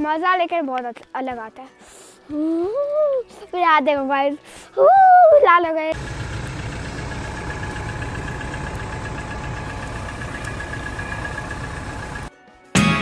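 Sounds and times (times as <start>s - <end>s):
vehicle engine idling: 5.9s - 12.3s.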